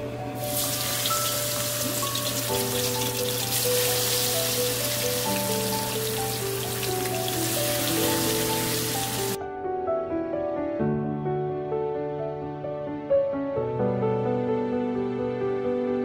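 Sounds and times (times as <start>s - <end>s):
batter deep-frying in oil: 0.4s - 9.4s.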